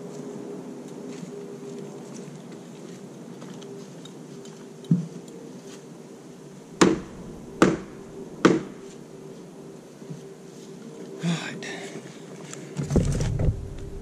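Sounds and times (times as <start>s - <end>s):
dull thump: 6.8s - 8.8s, 12.8s - 14.0s
hammer striking wood: 6.8s - 8.8s.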